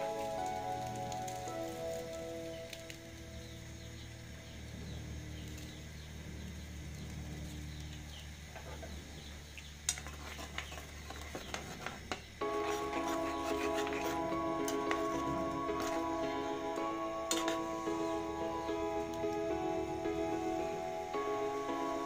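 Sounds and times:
background music: 0.0 - 5.2, 12.4 - 22.0
fork scraping frying pan: 9.9 - 16.0, 17.3 - 17.7.

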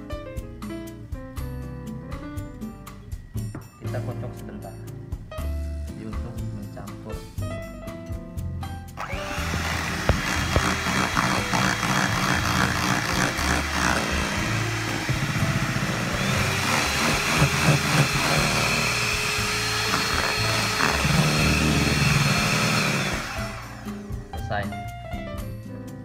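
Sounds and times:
electric hand mixer whine: 9.0 - 24.2.

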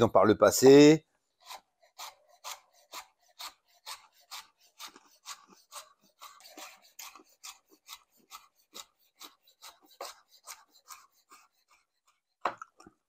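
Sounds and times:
knife slicing vegetables on board: 1.4 - 11.9.

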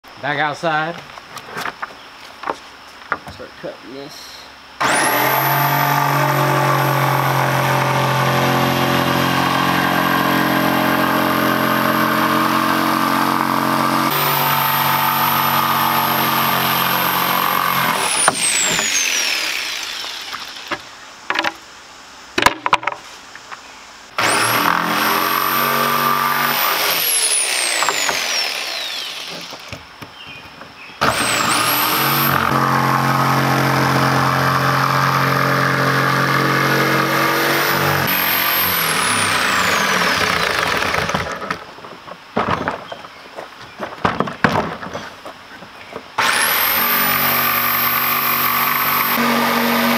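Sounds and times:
electric jigsaw cutting plywood: 4.8 - 20.7, 24.2 - 29.8, 31.0 - 41.6, 46.2 - 49.9
knocks: 43.8 - 45.7.

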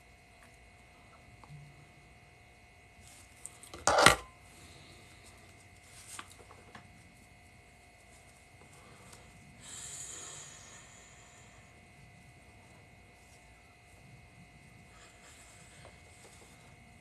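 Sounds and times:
man blowing out smoke: 9.6 - 11.4.

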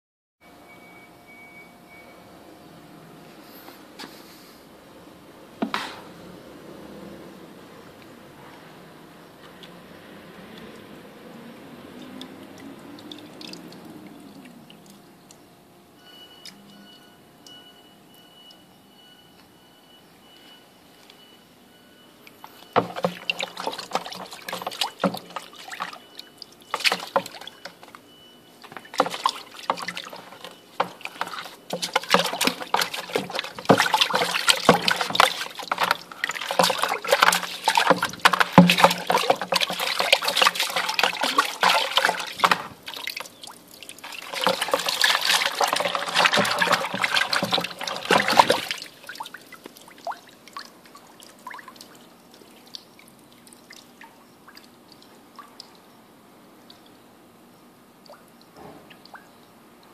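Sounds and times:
water sloshing in a bucket: 8.0 - 15.5, 22.3 - 57.1.

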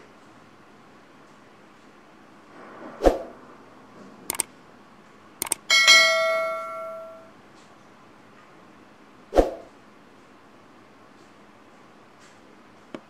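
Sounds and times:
whoosh: 2.4 - 4.4, 9.3 - 9.7
mouse clicks: 5.4 - 5.6
notification bell ringing: 5.7 - 7.3.

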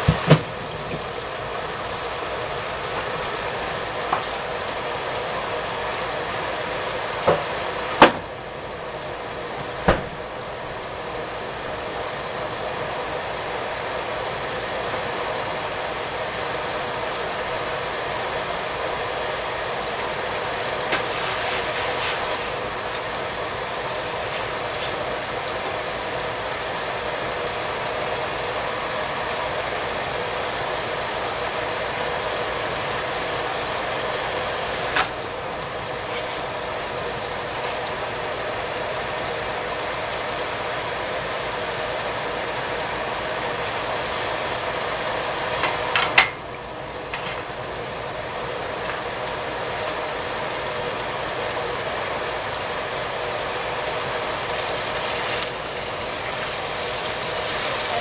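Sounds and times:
fish deep-frying in oil: 0.0 - 58.0.

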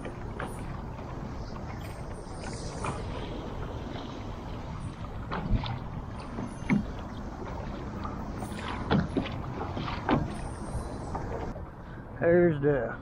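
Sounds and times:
waves slapping kayak hull: 0.0 - 11.6
rush of wind and water: 0.0 - 13.0.

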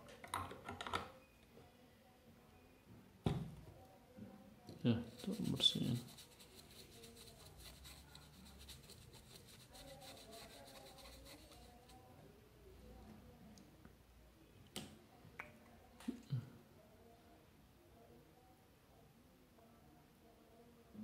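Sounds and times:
bristle brush scrubbing circuit board: 5.0 - 12.0.

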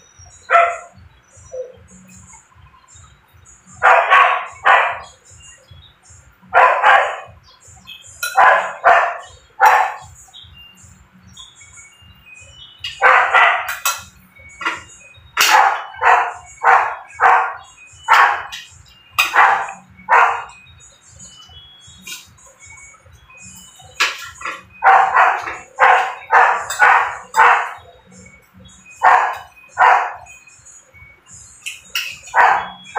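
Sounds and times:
dog barking: 0.5 - 1.7, 3.7 - 5.2, 6.5 - 7.4, 8.2 - 10.1, 13.0 - 14.0, 15.4 - 18.6, 19.2 - 20.6, 24.0 - 27.9, 29.0 - 30.3, 32.1 - 32.9.

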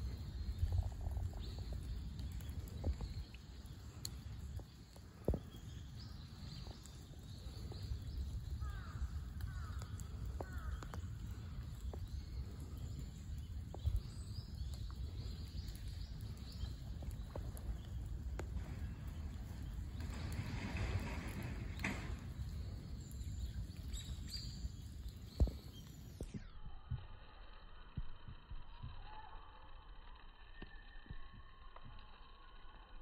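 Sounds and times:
low rumble: 0.0 - 33.0
faint bird chirps: 22.4 - 32.9.

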